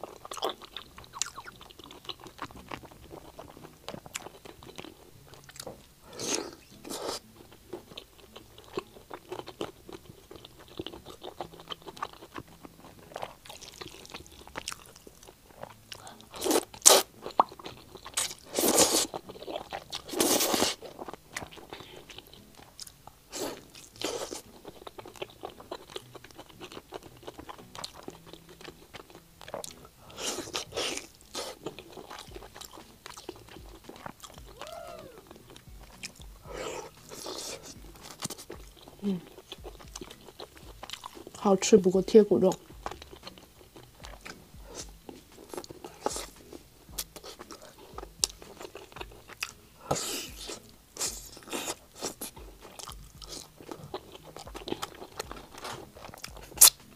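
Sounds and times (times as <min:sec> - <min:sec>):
chewing and biting: 0:00.0 - 0:41.4, 0:42.5 - 0:56.9
slurping noodles: 0:06.1 - 0:07.2, 0:16.4 - 0:17.1, 0:18.0 - 0:21.0, 0:29.5 - 0:32.2, 0:36.5 - 0:38.5, 0:49.8 - 0:54.2.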